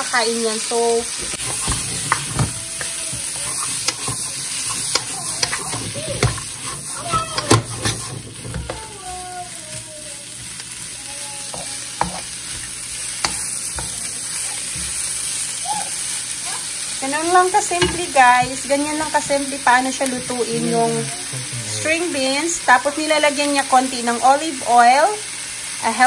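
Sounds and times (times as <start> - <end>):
food sizzling in a wok: 0.0 - 26.0
spatula scraping and knocking pan: 1.2 - 9.8, 11.5 - 14.0, 17.2 - 19.5.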